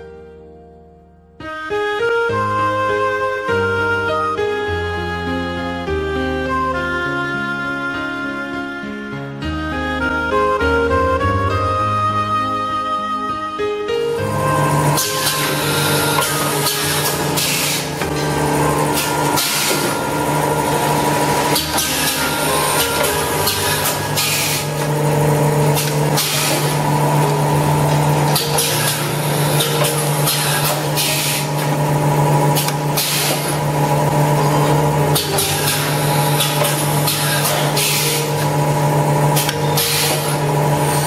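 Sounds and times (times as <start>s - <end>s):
machine humming: 14.1s - 41.0s
pneumatic cylinders hissing: 14.9s - 18.0s, 18.9s - 20.0s, 20.9s - 24.8s, 25.7s - 26.8s, 28.3s - 31.8s, 32.6s - 33.6s, 35.1s - 38.4s, 39.4s - 41.0s.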